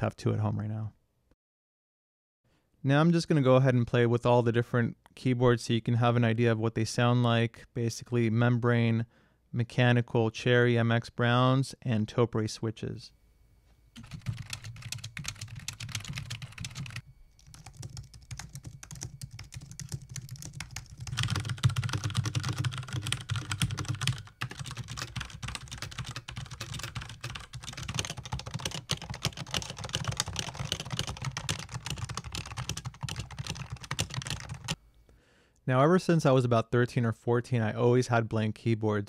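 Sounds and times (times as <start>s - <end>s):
fast typing on keyboards: 14.0s - 34.8s.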